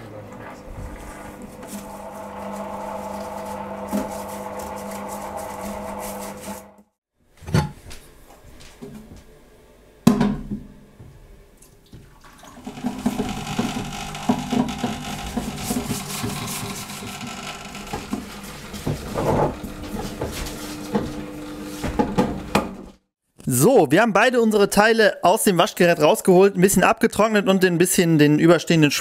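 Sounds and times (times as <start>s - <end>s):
brush scrubbing parts: 0.9s - 6.8s, 12.6s - 22.0s
liquid splashing in tub: 12.0s - 13.2s.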